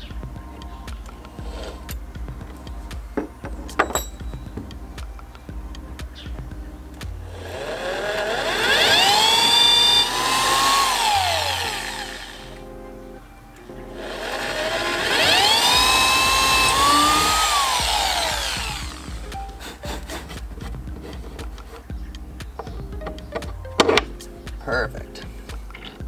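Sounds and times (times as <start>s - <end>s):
electric drill boring into wood: 7.3s - 12.5s, 14.0s - 20.3s.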